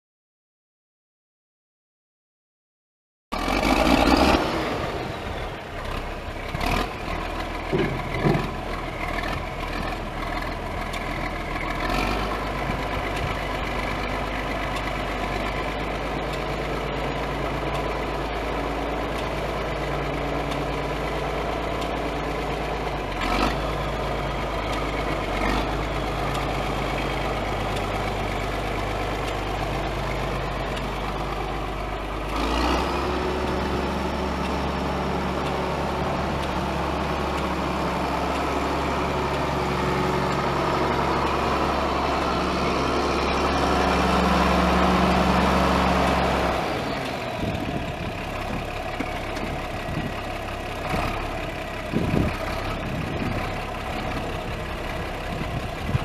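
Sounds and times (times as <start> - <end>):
tractor diesel engine running: 3.3 - 56.0.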